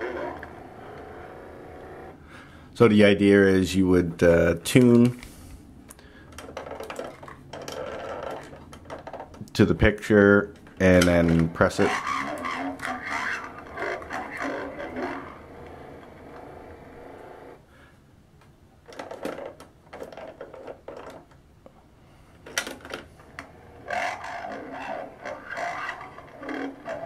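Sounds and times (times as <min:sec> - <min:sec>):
mechanical whir: 0:00.0 - 0:02.2, 0:11.2 - 0:17.6, 0:23.2 - 0:27.0
toy playing garbled speech: 0:10.8 - 0:15.9, 0:23.9 - 0:27.0.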